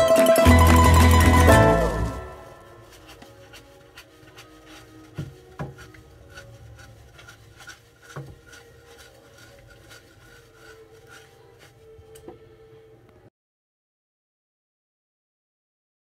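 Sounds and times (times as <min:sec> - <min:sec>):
sponge scrubbing: 0:02.4 - 0:12.2.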